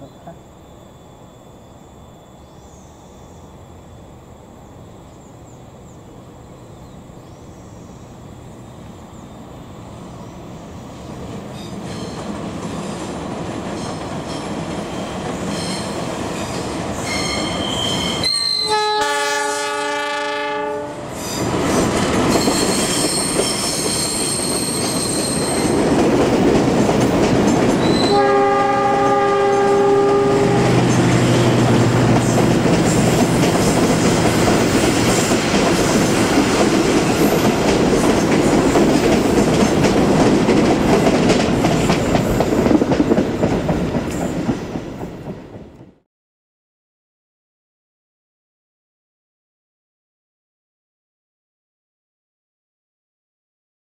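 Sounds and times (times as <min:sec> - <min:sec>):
train passing: 0:00.0 - 0:46.0
train horn blasts: 0:17.0 - 0:21.2, 0:27.8 - 0:30.8
wheels clattering on rails: 0:21.4 - 0:28.1, 0:30.8 - 0:45.8.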